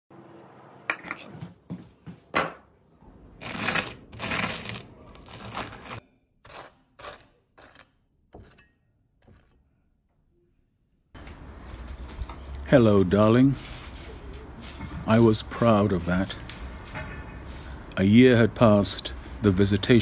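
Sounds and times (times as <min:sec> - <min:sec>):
knife scraping butter on toast: 0:03.4 - 0:09.6.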